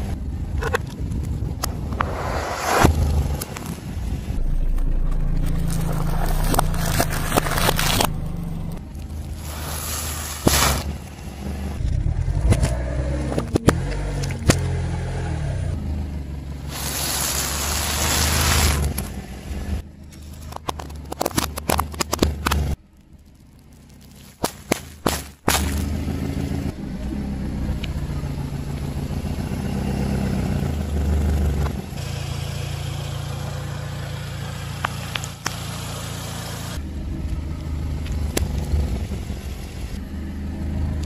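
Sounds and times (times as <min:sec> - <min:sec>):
car engine running low: 0:00.0 - 0:24.4, 0:25.4 - 0:41.0
aerosol can bursting and hissing: 0:09.3 - 0:11.0, 0:16.7 - 0:19.0
tyre crushing objects: 0:09.4 - 0:11.0
sharp cracks and snaps: 0:20.4 - 0:25.9.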